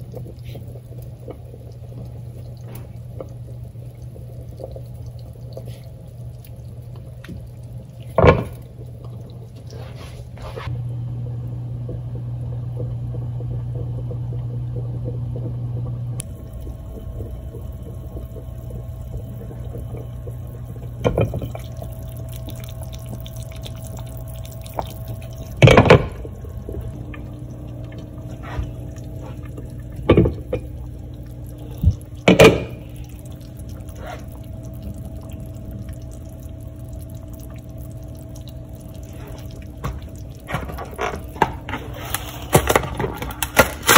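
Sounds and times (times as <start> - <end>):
broth simmering: 0.0 - 43.9.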